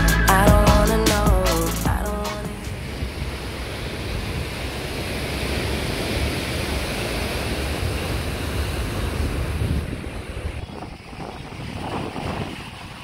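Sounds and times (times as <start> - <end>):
wind buffeting microphone: 2.6 - 13.0.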